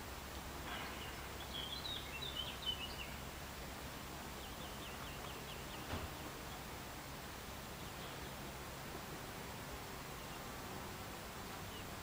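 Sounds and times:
small bird chirping: 0:00.7 - 0:06.7, 0:07.7 - 0:08.5.

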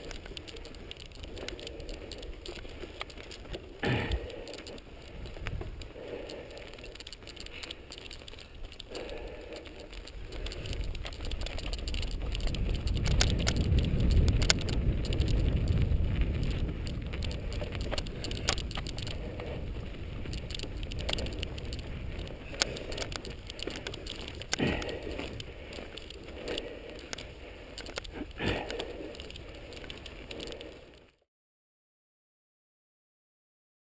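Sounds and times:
bike clicks and rattles: 0:00.0 - 0:31.2
tyres crunching on dirt: 0:00.0 - 0:31.2
heavy low rumble: 0:03.8 - 0:30.8.

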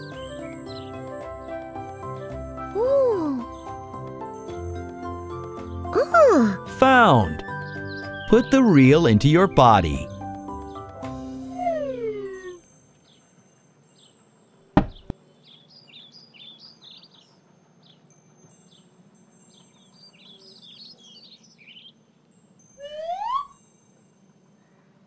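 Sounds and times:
birds chirping: 0:05.7 - 0:13.3, 0:14.8 - 0:18.1
cartoon rising swoop: 0:22.8 - 0:23.6.

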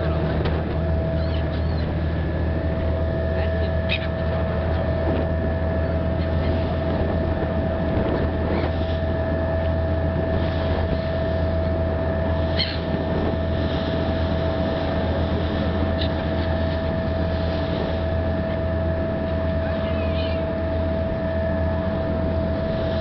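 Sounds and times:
gull cries: 0:00.0 - 0:02.2, 0:03.1 - 0:07.2, 0:11.4 - 0:13.4, 0:18.8 - 0:21.7
ship diesel engine droning: 0:00.0 - 0:23.0
wind: 0:00.0 - 0:23.0.

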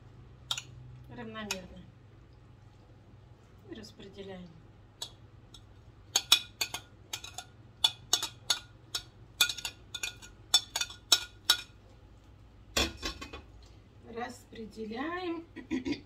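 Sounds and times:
metal utensil clinking on cookware: 0:06.1 - 0:11.8.

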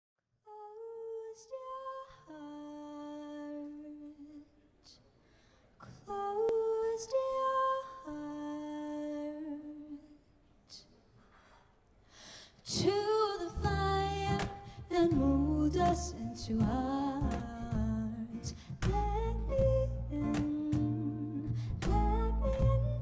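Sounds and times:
breaths: 0:05.0 - 0:06.0, 0:11.1 - 0:12.7, 0:14.6 - 0:14.9, 0:18.5 - 0:18.8, 0:21.5 - 0:21.8.

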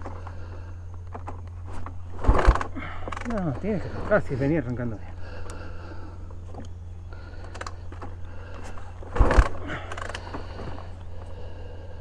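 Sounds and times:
engine turning over with thumps: 0:00.0 - 0:12.0
motorcycle kick-start: 0:01.0 - 0:05.7, 0:07.3 - 0:11.4.

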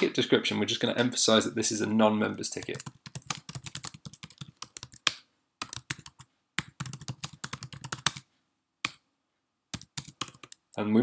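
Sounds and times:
typing on a computer keyboard: 0:02.6 - 0:08.2, 0:09.8 - 0:10.7.

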